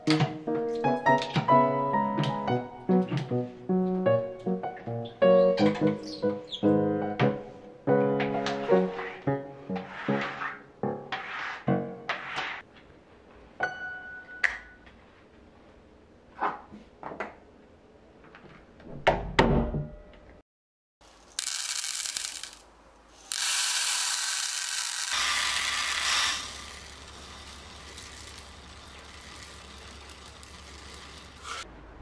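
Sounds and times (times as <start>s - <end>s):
rice grains pouring into pot: 21.0s - 22.6s, 23.2s - 31.6s.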